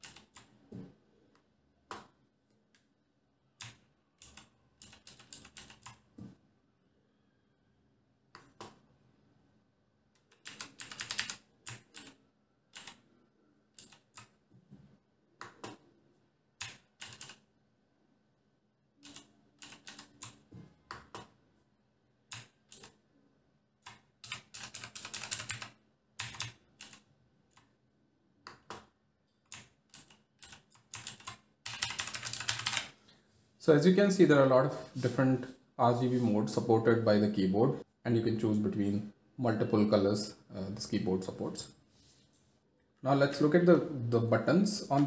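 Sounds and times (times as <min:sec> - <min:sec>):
mechanical keyboard clicks: 0:00.0 - 0:00.5, 0:03.6 - 0:06.0, 0:10.2 - 0:13.0, 0:13.7 - 0:14.3, 0:16.6 - 0:17.4, 0:19.0 - 0:20.4, 0:23.8 - 0:27.7, 0:29.5 - 0:32.9.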